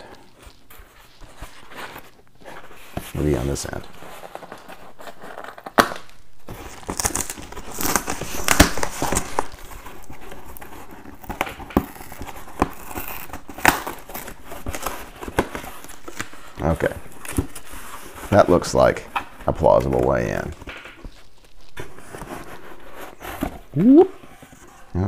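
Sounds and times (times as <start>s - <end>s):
cardboard crackling and ripping: 0.0s - 24.9s.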